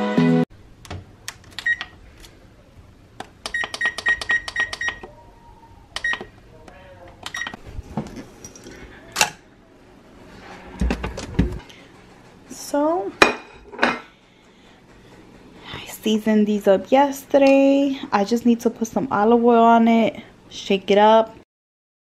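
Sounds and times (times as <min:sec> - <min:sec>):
oven control panel beeps: 0:01.6 - 0:01.9, 0:03.4 - 0:05.1, 0:06.0 - 0:06.3, 0:07.2 - 0:07.6.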